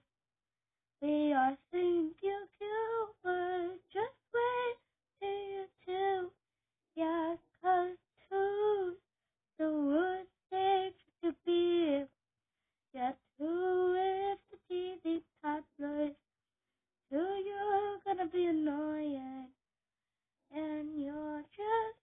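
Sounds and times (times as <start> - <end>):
girl singing unaccompanied: 1.0 - 6.3, 7.0 - 9.0, 9.6 - 12.1, 13.0 - 16.2, 17.1 - 19.5, 20.5 - 22.0.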